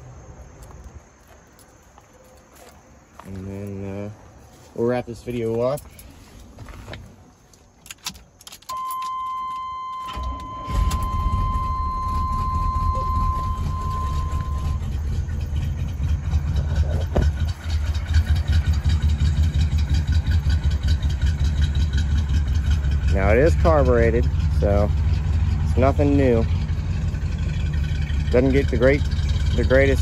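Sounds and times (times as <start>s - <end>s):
dashboard warning tone: 8.7s - 15.4s
engine idling: 9.4s - 30.0s
engine cranking: 10.0s - 30.0s.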